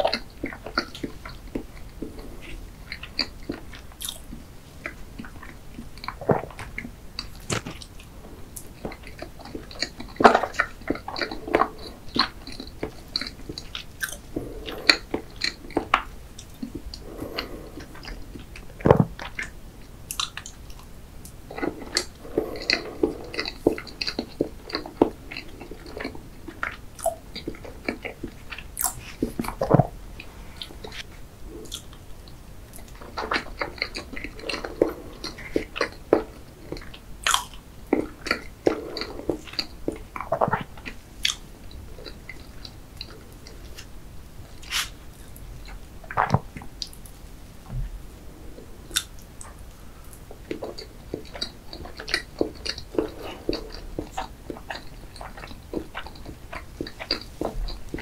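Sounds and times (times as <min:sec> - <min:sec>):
chewing and lip smacking: 0:00.0 - 0:47.3, 0:48.2 - 0:58.0.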